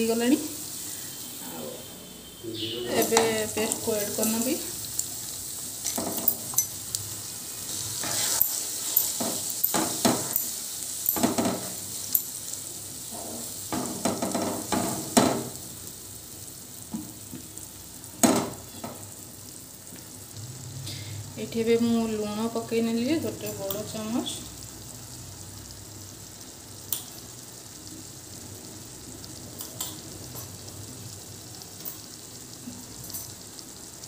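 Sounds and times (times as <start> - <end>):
onions sizzling in hot oil: 0.0 - 34.0
wooden spatula scraping pan: 7.7 - 9.5.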